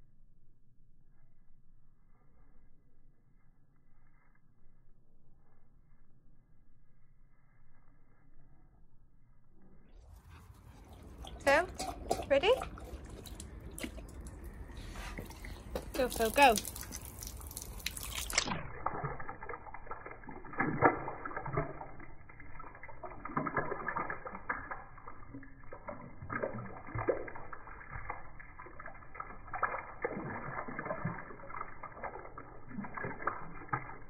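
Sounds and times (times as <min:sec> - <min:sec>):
dog lapping at water: 0:10.1 - 0:34.0
garden hose stream: 0:10.1 - 0:34.0.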